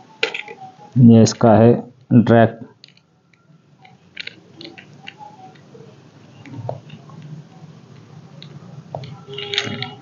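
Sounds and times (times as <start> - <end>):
clicks and handling noises: 0.2 - 0.6, 3.8 - 5.7, 7.9 - 10.0.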